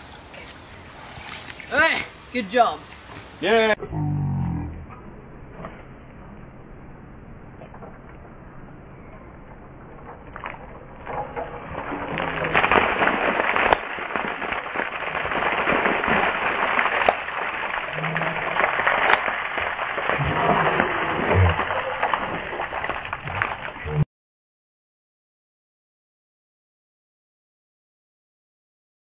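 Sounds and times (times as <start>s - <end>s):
ice water splashing on concrete: 11.3s - 23.9s.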